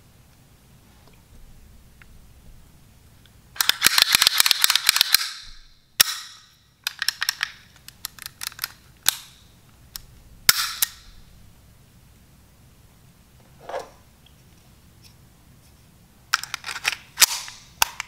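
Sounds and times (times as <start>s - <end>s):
pistol mechanism clicking: 3.6s - 5.4s, 6.0s - 9.4s, 10.0s - 11.1s, 16.4s - 18.0s.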